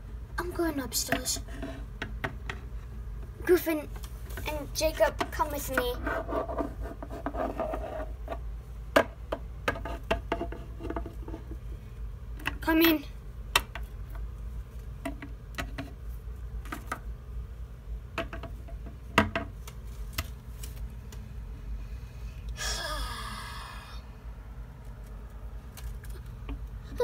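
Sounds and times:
low steady hum: 0.0s - 27.0s
short falling vocal sound: 22.6s - 24.1s.

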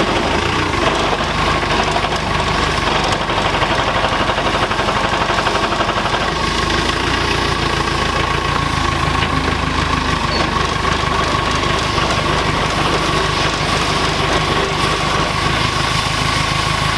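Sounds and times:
diesel engine clattering: 0.0s - 16.9s
hydraulics working: 0.0s - 16.9s.

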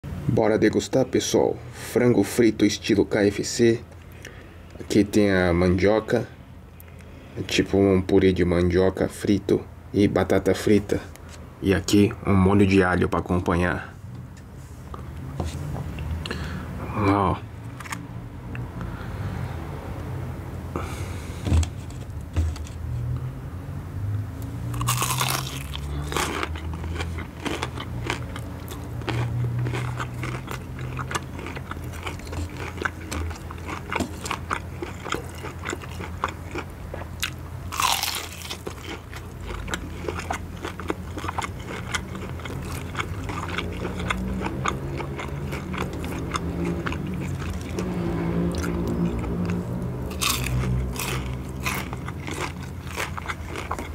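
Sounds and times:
crackly chewing: 24.7s - 53.9s
crunching fried chicken: 24.7s - 53.9s.

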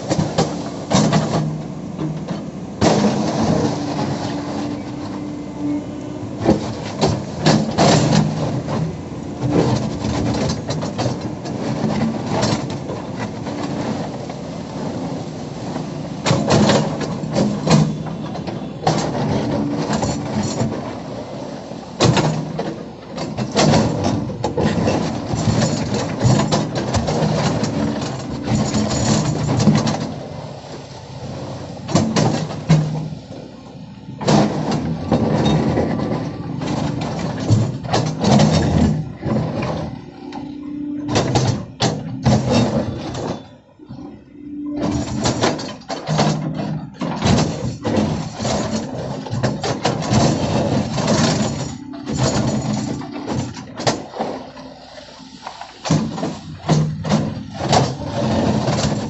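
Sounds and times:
excavator diesel engine: 0.0s - 59.0s
steel bucket scraping stones: 44.7s - 59.0s.

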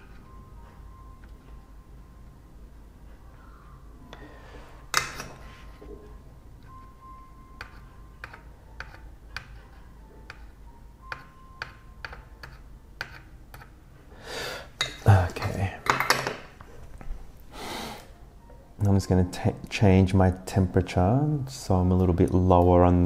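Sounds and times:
soldering iron tapping circuit board: 7.6s - 9.6s.

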